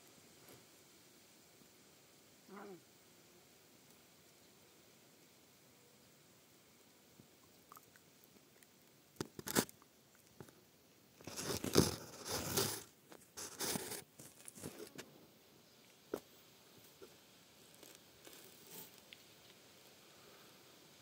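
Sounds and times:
small ticks: 7.1 - 10.6, 15.8 - 19.6
rustling and crunching handling noise: 8.3 - 20.1.

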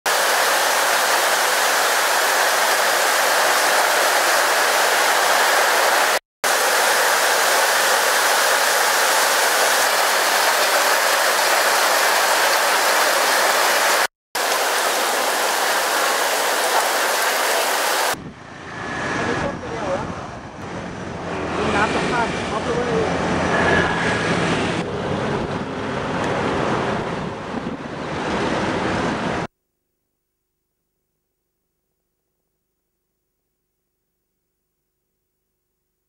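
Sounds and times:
heavy rain pouring: 0.1 - 18.2.

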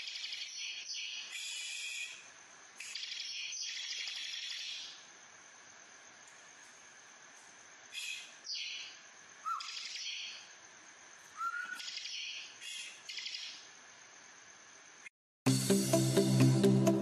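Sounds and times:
bird buzzy rattling song: 0.0 - 5.1, 6.4 - 13.8.

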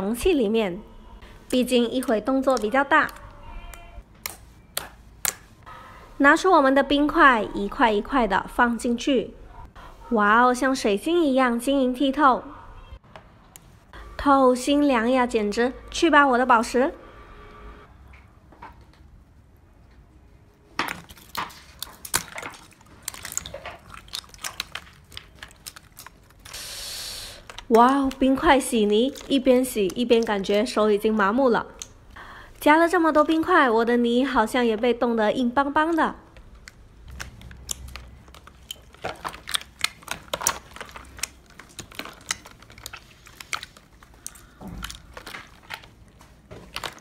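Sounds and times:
ice and slime clicking and crackling: 2.0 - 5.4, 20.9 - 32.0, 35.8 - 47.0.

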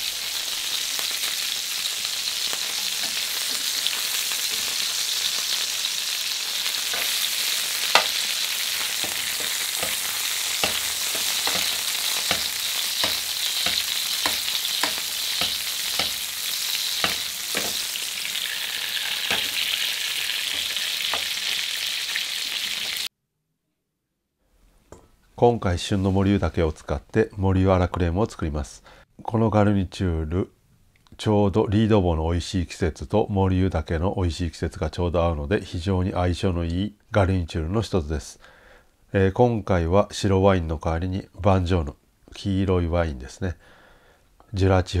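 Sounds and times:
butter sizzling in frying pan: 0.0 - 23.1
spoon clicking against pan: 9.0 - 16.3, 17.0 - 17.9.

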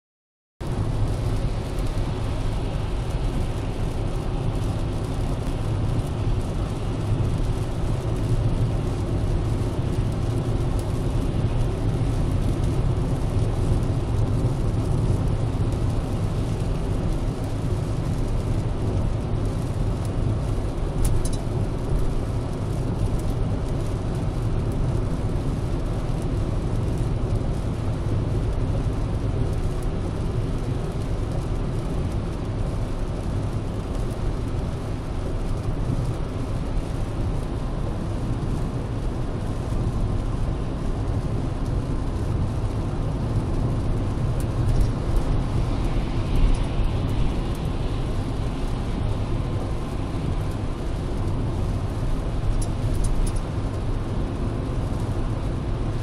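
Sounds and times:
car engine and tyre rumble: 0.6 - 56.0
wet road hiss: 39.3 - 54.9.

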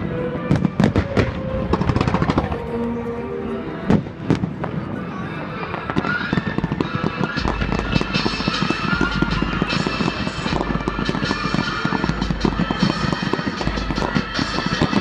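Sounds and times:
fireworks bangs: 0.5 - 2.8, 3.9 - 15.0
fireworks crackling: 0.5 - 2.8, 5.5 - 15.0.

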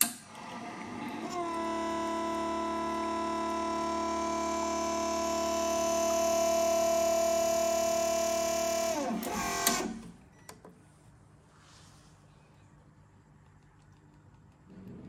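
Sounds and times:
espresso machine pump whine: 0.3 - 10.0.

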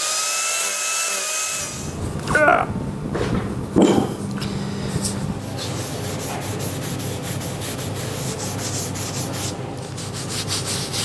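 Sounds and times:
steady low hum: 1.6 - 11.0
brush scrubbing wood: 5.4 - 11.0.

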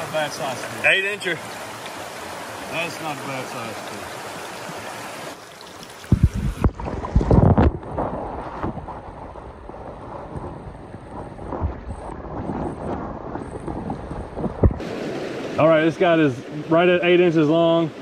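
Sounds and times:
creek water rushing: 0.0 - 10.3, 14.8 - 18.0
microphone rumbling and thumping: 6.0 - 14.8.

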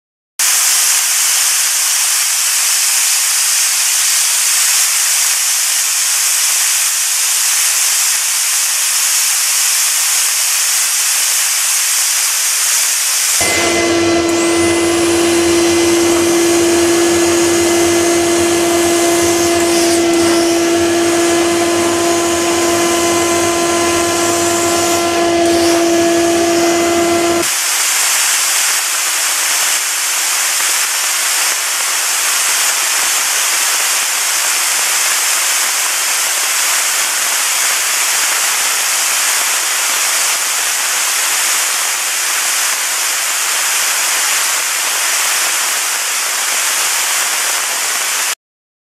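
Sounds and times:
steam jets hissing: 0.4 - 48.4
machine motor hum: 13.4 - 27.4.

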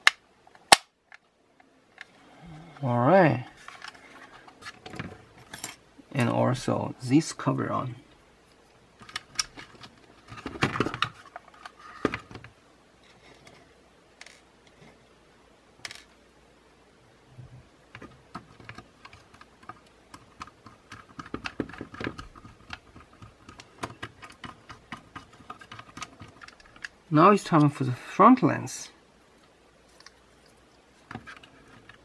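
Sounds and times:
plastic parts clicking: 9.0 - 12.5, 17.9 - 27.0, 31.0 - 32.0.

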